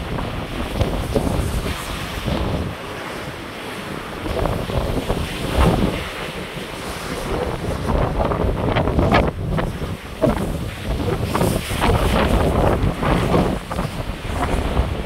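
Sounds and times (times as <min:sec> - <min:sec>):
waves breaking along ship hull: 0:00.0 - 0:15.0
wind buffeting microphone: 0:00.0 - 0:15.0.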